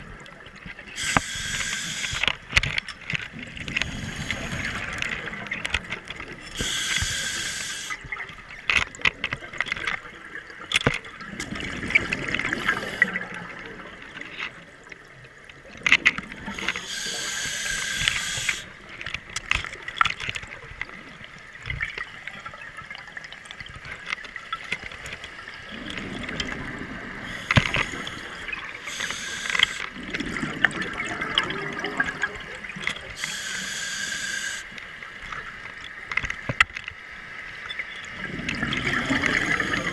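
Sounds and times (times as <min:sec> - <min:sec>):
regulator breathing inhalations: 0:01.0 - 0:02.3, 0:03.7 - 0:05.1, 0:06.5 - 0:08.0, 0:16.4 - 0:18.8, 0:27.2 - 0:29.9, 0:33.2 - 0:34.8
exhaled air bubbling: 0:11.2 - 0:14.1, 0:25.6 - 0:34.7, 0:38.1 - 0:39.9.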